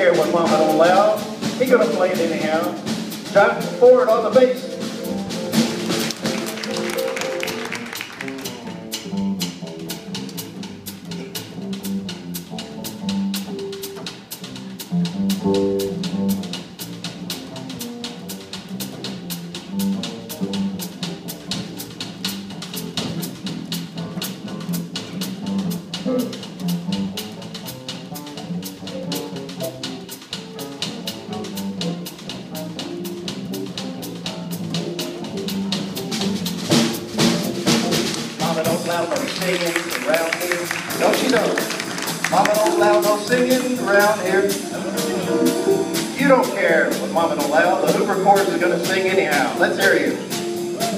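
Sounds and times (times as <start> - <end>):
plucked double bass: 0.0 - 50.9
drum kit light ticks: 8.4 - 36.6.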